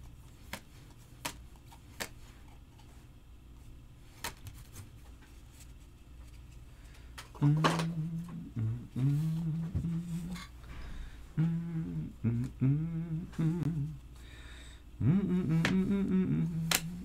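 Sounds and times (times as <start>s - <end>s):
person humming: 7.3s - 10.6s, 11.2s - 14.3s, 15.0s - 17.0s.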